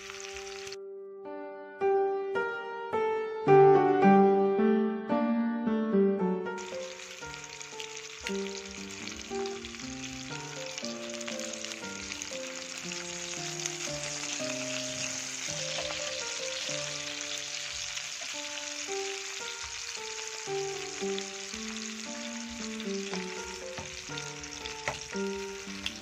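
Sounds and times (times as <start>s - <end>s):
sausages sizzling in hot oil: 0.0s - 0.8s, 6.6s - 26.0s.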